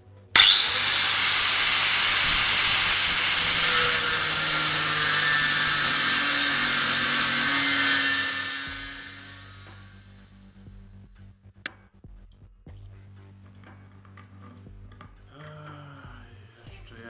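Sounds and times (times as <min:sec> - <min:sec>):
angle grinder cutting metal: 0:00.4 - 0:10.3.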